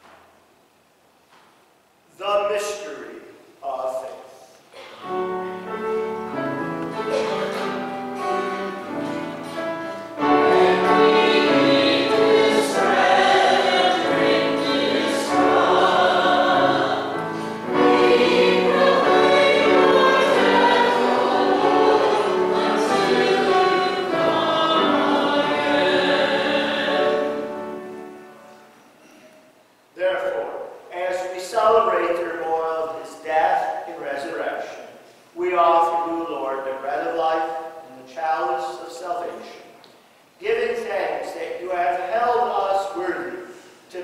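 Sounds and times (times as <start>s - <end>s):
choir and congregation singing: 4.8s - 29.0s
sustained accompaniment: 4.8s - 29.0s.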